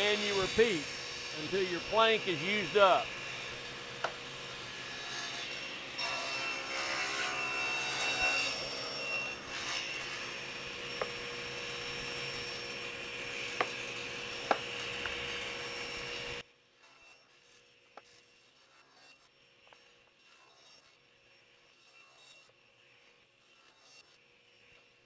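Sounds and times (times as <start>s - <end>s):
table saw running: 0.0s - 17.2s
saw blade cutting wood: 0.0s - 25.0s.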